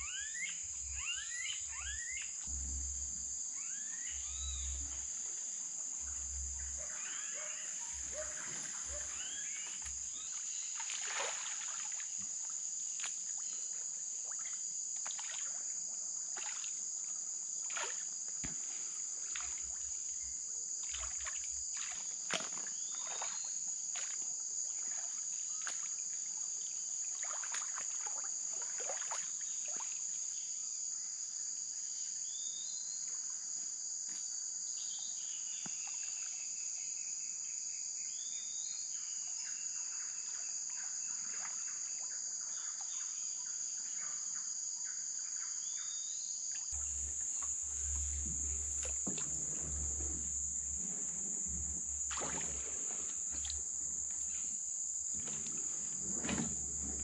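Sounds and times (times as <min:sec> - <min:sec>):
high-pitched insect drone: 0:00.0 - 0:11.8, 0:46.8 - 0:57.0
low rumble: 0:02.5 - 0:03.4.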